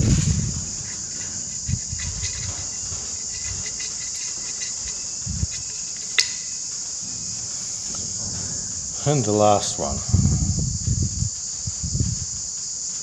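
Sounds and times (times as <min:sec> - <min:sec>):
insects chirring: 0:00.0 - 0:13.0
sharp metallic click: 0:06.1 - 0:06.6.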